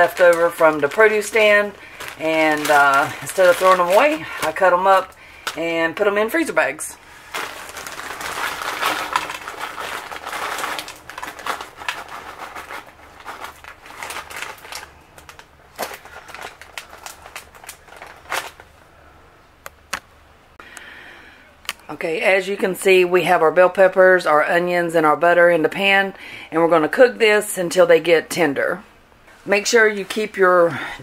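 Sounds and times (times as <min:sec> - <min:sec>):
plastic bag crinkling: 0:00.0 - 0:18.8.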